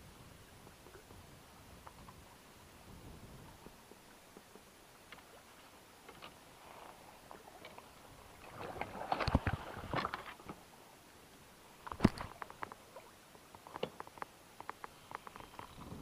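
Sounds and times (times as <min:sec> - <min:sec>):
water splashing: 0:07.0 - 0:10.5
sharp clicks and knocks: 0:13.6 - 0:15.7.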